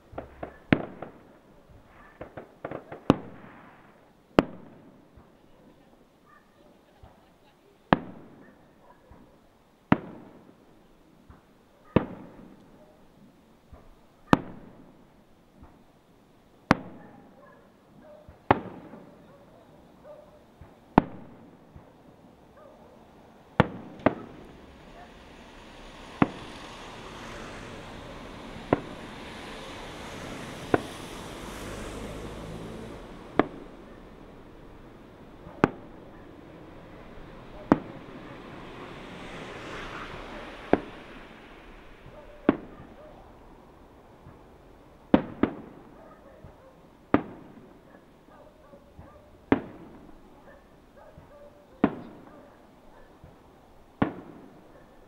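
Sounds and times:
fireworks bursting with bangs: 0.0 - 6.0, 6.8 - 16.0, 16.6 - 17.4, 18.3 - 19.8, 20.4 - 48.2, 48.8 - 55.0
steady hiss: 23.1 - 42.6.

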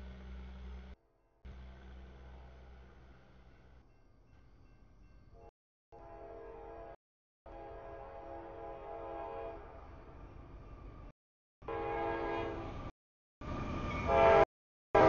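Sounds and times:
locomotive air horn: 5.9 - 9.8, 11.6 - 12.8, 14.0 - 15.0.

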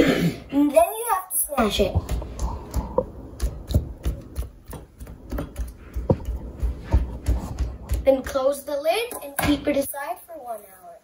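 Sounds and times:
hand punching dough thumps: 1.6 - 8.6.

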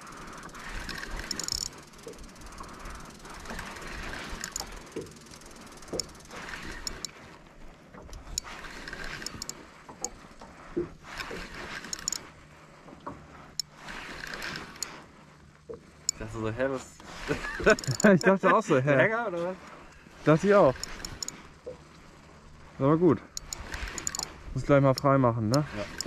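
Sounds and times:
reel clicks: 0.0 - 18.4, 19.6 - 26.0
fishing reel whirring: 0.0 - 18.6, 19.6 - 26.0.

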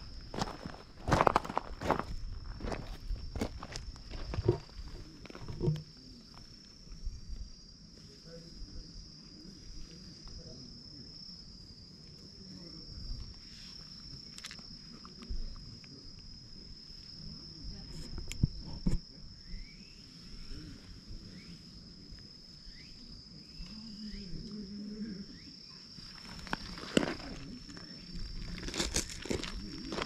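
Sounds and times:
gravel crunching: 0.0 - 6.6, 26.0 - 30.0
insects droning: 0.0 - 30.0.

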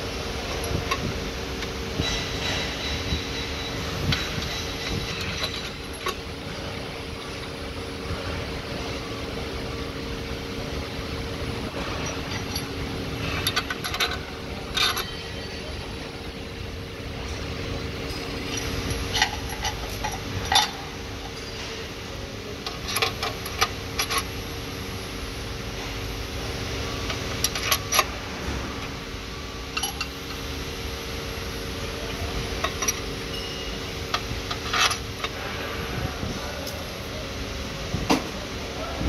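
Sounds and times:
steady mechanical hum: 0.0 - 39.0
metal bolts and spanner clinking: 0.4 - 7.6, 11.7 - 16.3, 16.9 - 22.0, 22.6 - 24.4, 27.0 - 28.2, 29.7 - 30.5, 32.0 - 35.4.

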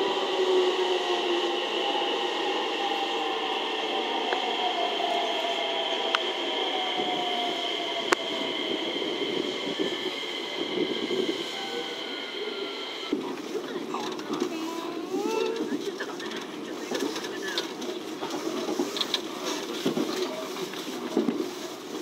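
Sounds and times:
train running on rails: 0.0 - 22.0.

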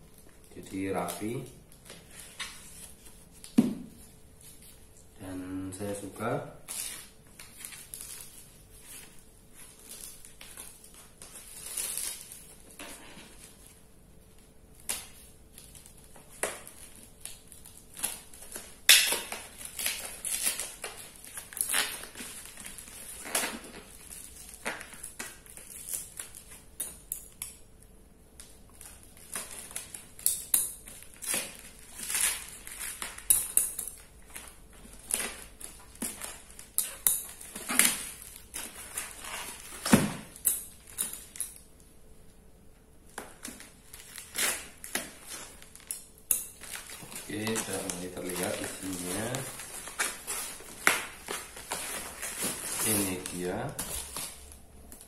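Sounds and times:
packing tape ripping: 9.7 - 13.5, 14.8 - 27.0, 28.4 - 41.7, 43.1 - 55.0.

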